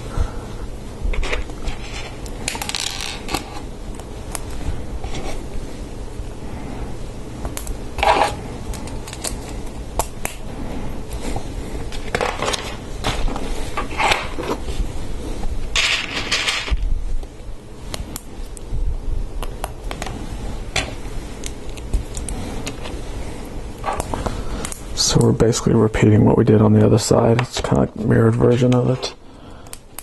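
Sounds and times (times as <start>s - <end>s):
plastic pieces scraping: 8.0s - 9.6s, 11.9s - 14.7s.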